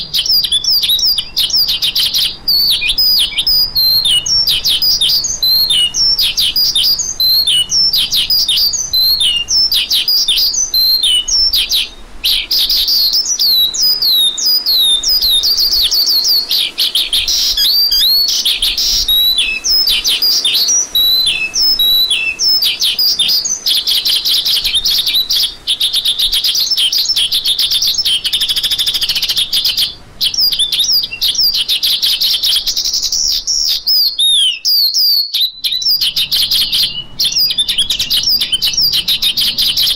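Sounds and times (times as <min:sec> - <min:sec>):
lark singing: 0:00.0 - 0:39.9.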